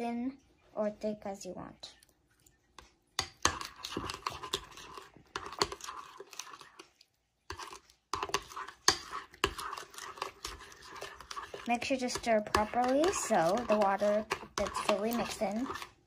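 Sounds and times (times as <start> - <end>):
spoon scraping and clicking in bowl: 3.2 - 16.0.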